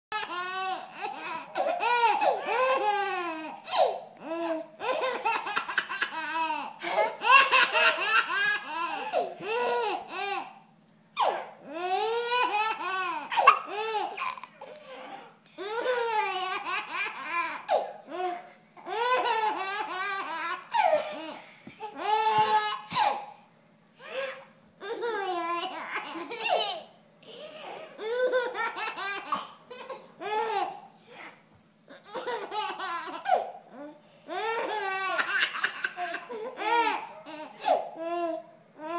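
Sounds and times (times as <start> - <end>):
baby and toddler giggling: 0.2 - 10.5, 15.6 - 23.3, 24.0 - 30.9, 32.0 - 33.6, 34.3 - 38.4.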